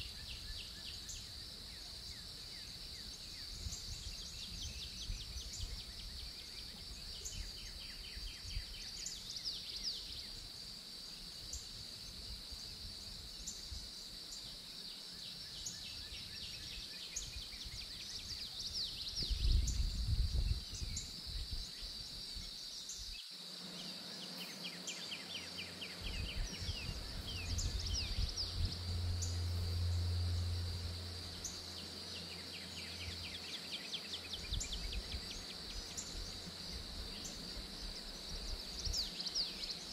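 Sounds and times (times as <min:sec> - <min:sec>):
insect drone: 0:00.0 - 0:39.9
low rumble: 0:26.1 - 0:32.0.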